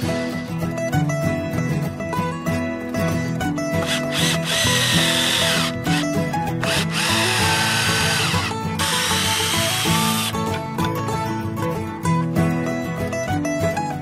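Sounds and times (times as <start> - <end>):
plucked-string background music: 0.0 - 14.0
cordless drill driving screws: 3.8 - 10.5.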